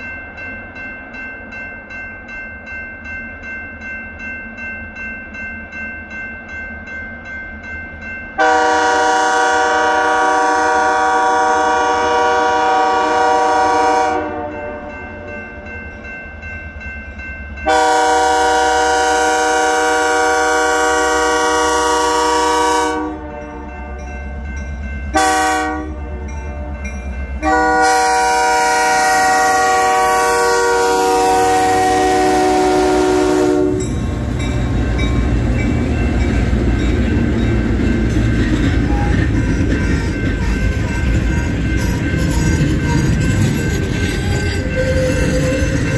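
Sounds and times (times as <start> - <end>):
crossing bell ringing: 0.0 - 45.9
locomotive engines and wheels rumbling: 0.0 - 45.9
locomotive air horn blasts: 8.4 - 15.0, 17.6 - 23.8, 25.1 - 33.9.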